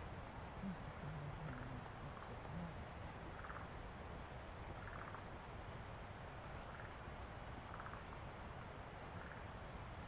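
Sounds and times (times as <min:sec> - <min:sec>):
faint low tone: 0:00.5 - 0:03.6.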